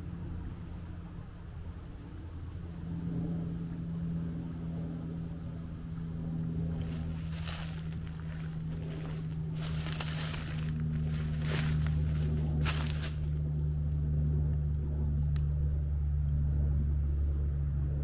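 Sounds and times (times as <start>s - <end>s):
engine droning: 0.0s - 18.0s
wind rustle: 6.6s - 13.4s.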